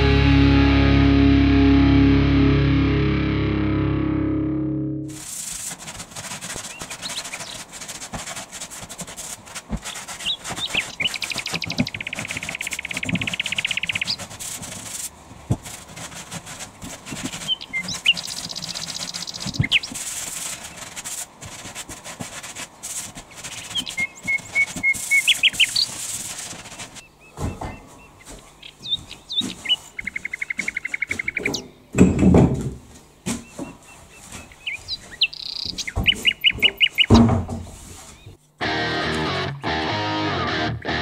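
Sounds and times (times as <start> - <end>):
sandpaper rasping on wood: 5.2 - 12.5, 13.7 - 27.0
high chirping squeaks: 6.6 - 7.6, 17.3 - 20.0, 23.5 - 26.0, 33.6 - 37.2.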